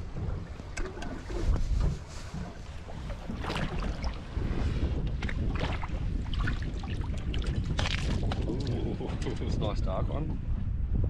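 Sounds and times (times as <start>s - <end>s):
water sloshing around boat: 0.0s - 10.3s
wind on microphone: 0.0s - 11.0s
splashes: 2.9s - 4.5s, 5.2s - 8.8s.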